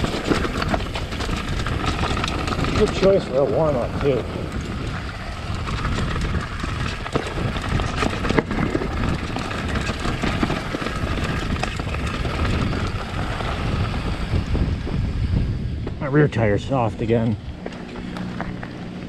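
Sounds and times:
bike knocks and rattles: 0.0 - 13.5
bike tyres rumbling on trail: 0.0 - 19.0
wind buffeting microphone: 0.0 - 19.0.

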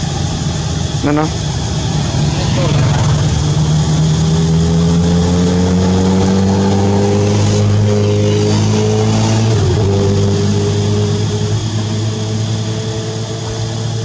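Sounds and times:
engine running steadily: 0.0 - 14.0.

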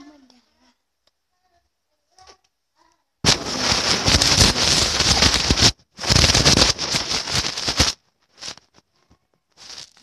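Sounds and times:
air rushing across microphone: 3.2 - 8.6.

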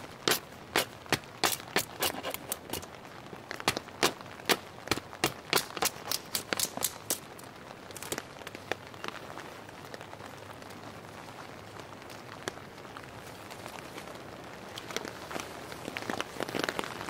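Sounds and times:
rain hissing: 0.0 - 17.0
hatchet chopping wood: 0.3 - 2.8, 3.6 - 7.2.

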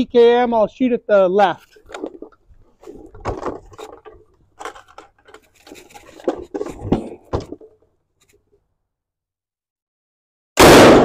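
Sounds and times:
gun handling clicks and scrapes: 1.6 - 8.6.

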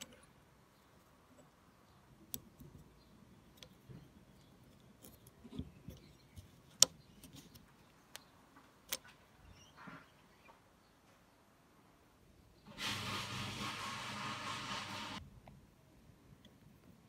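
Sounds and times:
metal scrape: 12.7 - 15.2.

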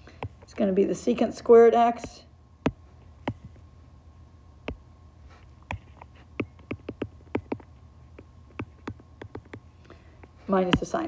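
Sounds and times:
low steady hum: 0.0 - 11.0
stylus tapping on glass screen: 6.4 - 9.6.

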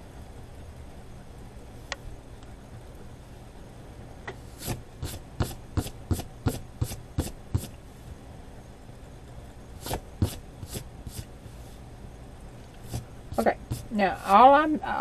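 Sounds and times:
hand sweeping across paper: 4.4 - 8.2, 9.8 - 11.8, 12.8 - 14.0.

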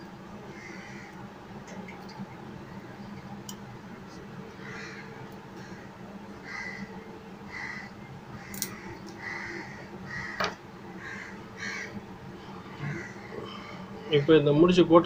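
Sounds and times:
low steady hum: 0.0 - 15.0
birds calling: 4.5 - 12.1, 12.7 - 14.4.

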